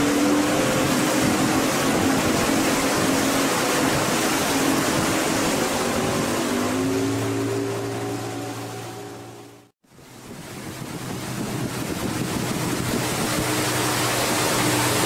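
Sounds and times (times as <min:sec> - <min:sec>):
wind and water rushing: 0:00.0 - 0:15.0.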